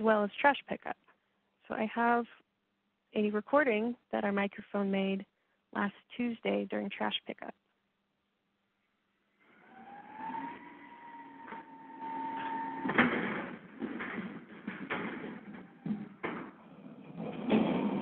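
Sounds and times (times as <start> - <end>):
garbage truck whine: 9.4 - 18.0
bins clanking and banging: 12.4 - 18.0.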